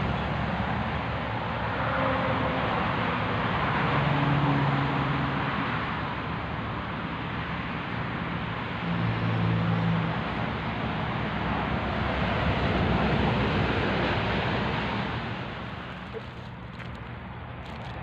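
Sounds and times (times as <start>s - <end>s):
road traffic: 0.0s - 18.0s
low engine hum: 10.4s - 18.0s.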